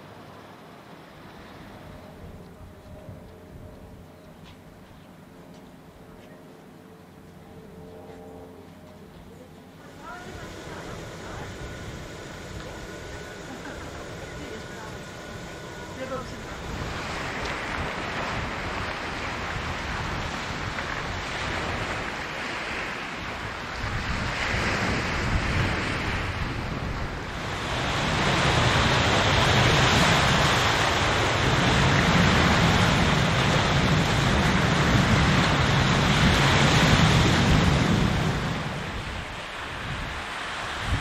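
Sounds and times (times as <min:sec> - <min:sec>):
waves washing on shore: 0:09.8 - 0:41.0
wind buffeting microphone: 0:09.9 - 0:41.0.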